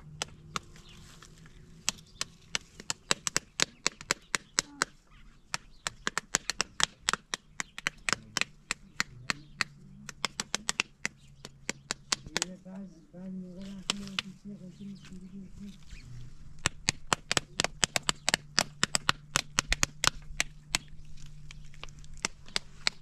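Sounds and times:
sharp chopping knocks: 1.8s - 5.0s, 5.6s - 12.5s, 16.6s - 20.9s.

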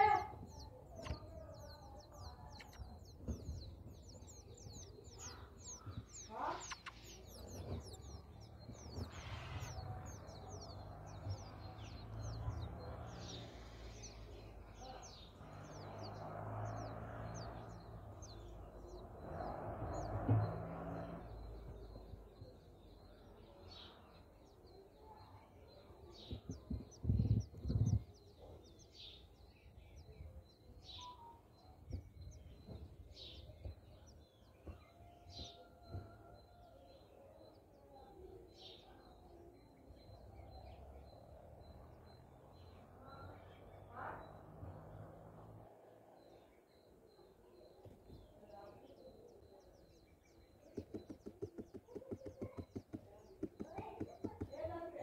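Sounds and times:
small birds chirping: 0.0s - 55.0s
dull knocks: 50.7s - 54.7s.

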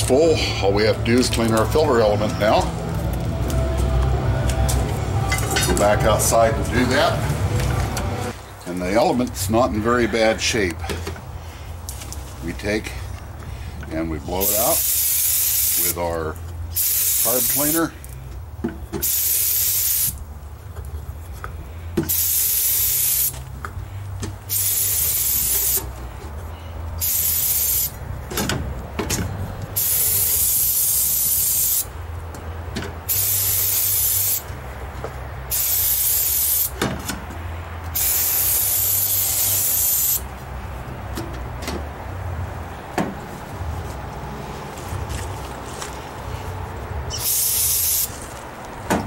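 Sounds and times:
aerosol can spraying: 14.4s - 16.0s, 16.8s - 17.8s, 19.0s - 20.2s, 22.1s - 23.4s, 24.5s - 25.9s, 27.0s - 28.0s, 29.8s - 31.9s, 33.1s - 34.4s, 35.5s - 36.8s, 38.0s - 40.2s, 47.2s - 48.1s.

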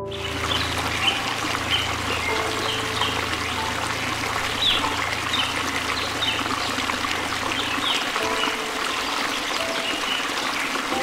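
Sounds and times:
bird chirps: 0.0s - 3.8s, 4.5s - 6.8s
soft background music: 0.0s - 11.0s
water rushing over rocks: 0.0s - 11.0s.

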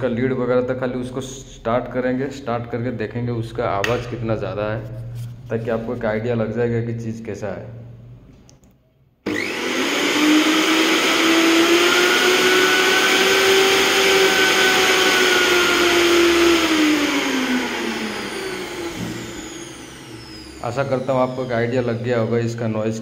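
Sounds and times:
mixer grinder motor whine: 9.2s - 23.0s.

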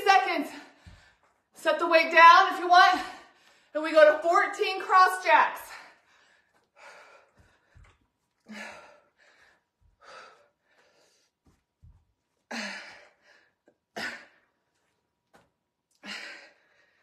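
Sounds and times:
woman breathing hard: 5.7s - 11.4s, 12.4s - 14.5s, 16.0s - 17.0s.

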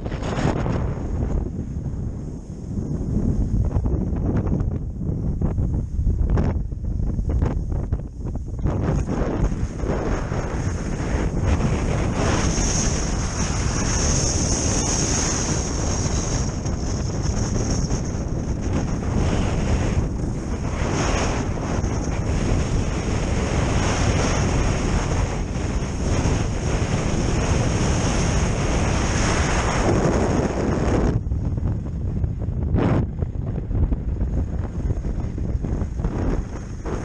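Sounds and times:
wind buffeting microphone: 0.0s - 37.0s
skis hissing on packed snow: 9.5s - 16.7s.

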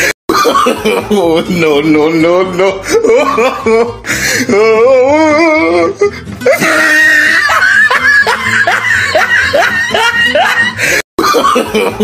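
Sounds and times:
person laughing: 0.3s - 1.5s, 2.6s - 4.7s, 6.4s - 12.0s
music: 0.4s - 12.0s.

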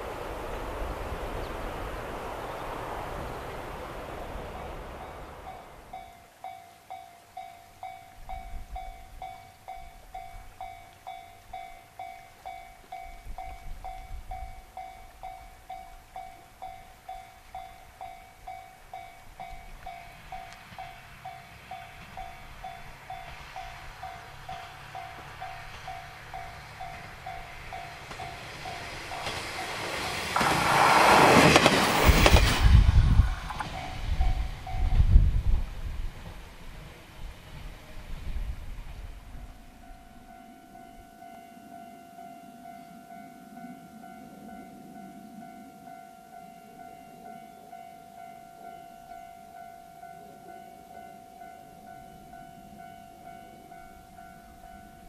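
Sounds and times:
diesel railcar passing: 0.0s - 55.0s
level crossing warning bell: 4.9s - 30.2s, 33.4s - 35.3s, 39.6s - 55.0s
train wheels clacking over rail joints: 19.8s - 34.4s.

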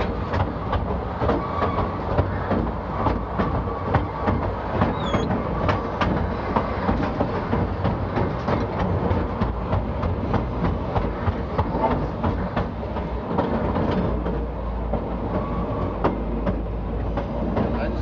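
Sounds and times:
train rumbling: 0.0s - 18.0s
train wheels clicking over rail joints: 0.0s - 18.0s
high squeak: 4.9s - 5.3s.

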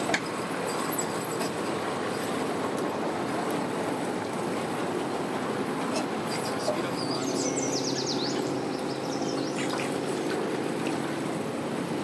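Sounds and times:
water churning: 0.0s - 12.0s
watercraft engine idling: 0.0s - 12.0s
bird chirping: 7.0s - 9.7s.

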